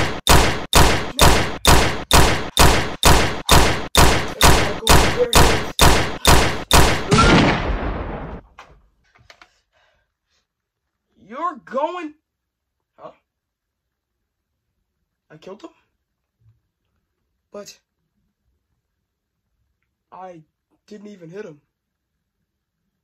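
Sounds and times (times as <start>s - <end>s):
rapid gunfire: 0.0s - 8.4s.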